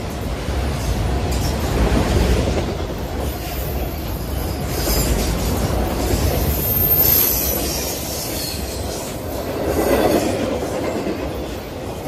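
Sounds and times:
train wheels rumbling and clattering: 0.0s - 12.0s
high wheel squeal: 6.2s - 10.2s.

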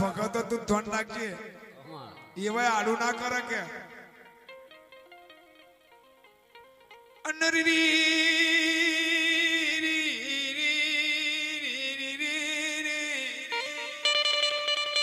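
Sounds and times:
man singing a long note: 7.3s - 14.4s.

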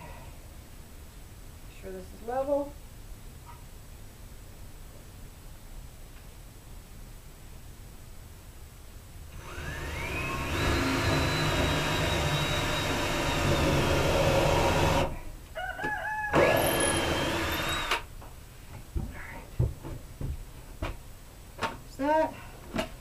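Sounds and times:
cordless drill whining: 9.4s - 15.1s, 16.3s - 18.1s.

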